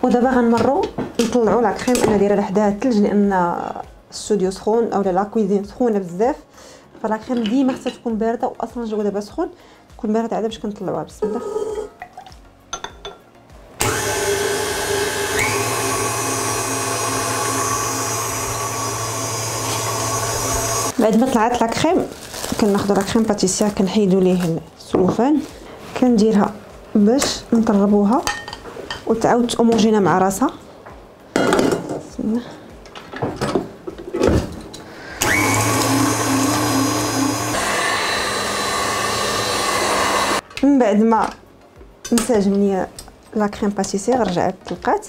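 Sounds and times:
stand mixer whisking cream: 13.8 - 20.9, 35.2 - 40.4.

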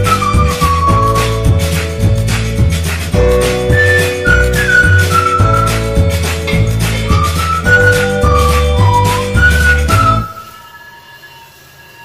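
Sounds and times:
flute and bass music: 0.0 - 12.0.

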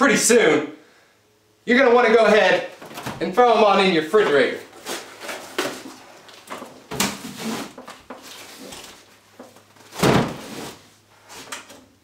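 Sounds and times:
rustling and scraping: 4.2 - 11.9.

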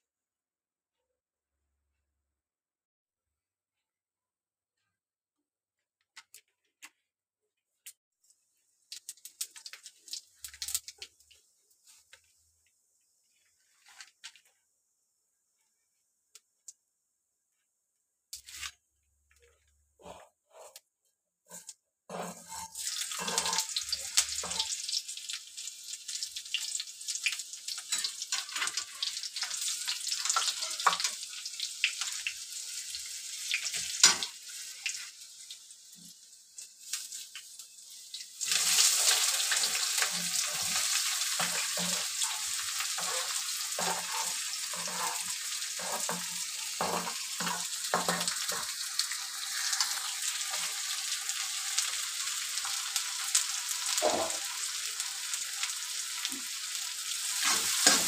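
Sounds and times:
spices sizzling in hot oil: 8.3 - 14.6, 21.5 - 58.0
metal spatula scraping pan: 21.5 - 24.8, 38.5 - 50.9, 57.3 - 58.0.

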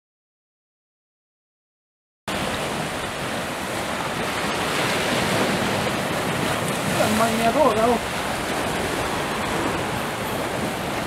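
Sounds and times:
surf washing over rocky shore: 2.3 - 11.0.

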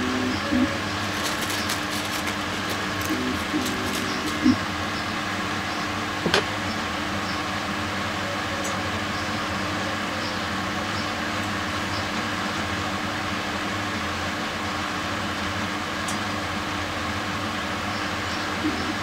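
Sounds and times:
machine humming: 0.0 - 13.0, 17.7 - 19.0.

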